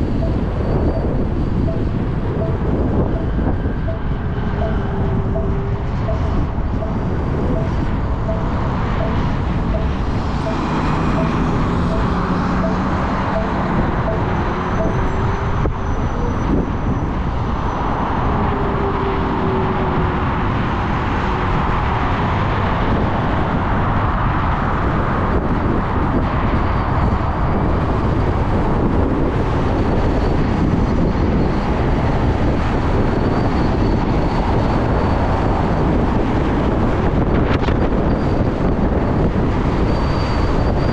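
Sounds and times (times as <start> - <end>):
road and traffic noise: 0.0 - 40.9
wind rushing over microphone: 0.0 - 40.9
faint even beeps: 0.1 - 15.4.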